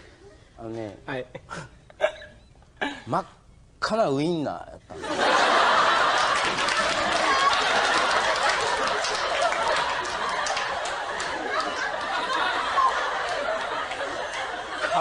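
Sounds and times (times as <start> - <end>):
audience laughing: 5.0 - 15.0
audience clapping: 5.7 - 15.0.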